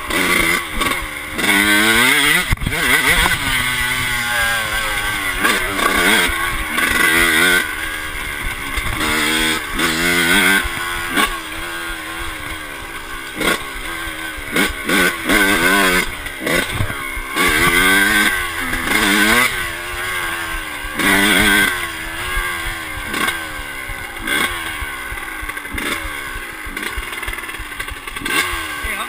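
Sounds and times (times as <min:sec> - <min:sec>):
motocross engine revving: 0:00.0 - 0:29.0.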